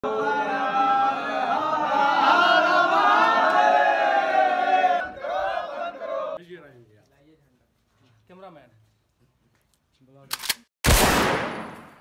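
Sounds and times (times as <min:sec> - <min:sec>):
men chanting in unison: 0:00.1 - 0:06.4.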